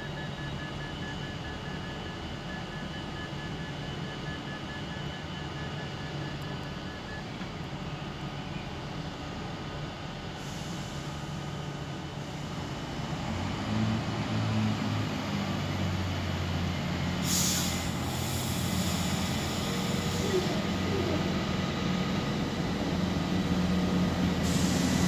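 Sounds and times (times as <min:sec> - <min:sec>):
diesel train engine running: 0:00.0 - 0:25.0
air hiss: 0:17.2 - 0:19.5.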